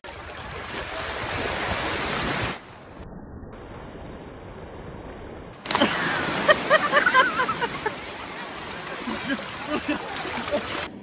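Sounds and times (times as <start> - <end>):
sea surf: 0.0 - 2.8, 5.6 - 11.0
wind: 0.0 - 11.0.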